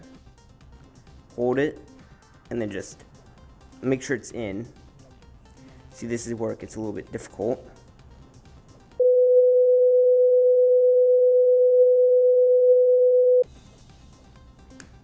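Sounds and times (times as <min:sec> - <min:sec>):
pure tone beep: 0:09.0 - 0:13.4.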